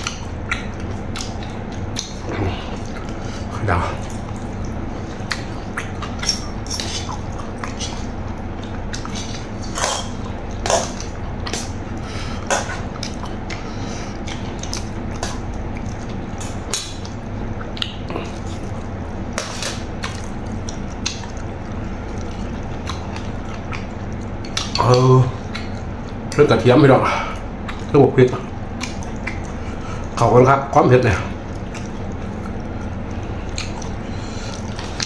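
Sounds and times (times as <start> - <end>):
steady background hum: 0.0 - 35.0.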